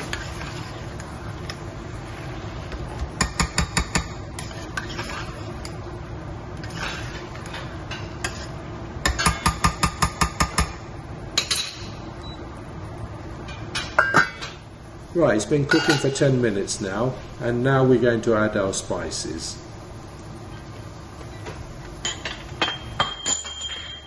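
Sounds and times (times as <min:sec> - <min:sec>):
metal spoon scraping saucepan: 0:00.0 - 0:01.1, 0:04.4 - 0:05.8, 0:06.6 - 0:08.5
low background hiss: 0:11.0 - 0:23.5.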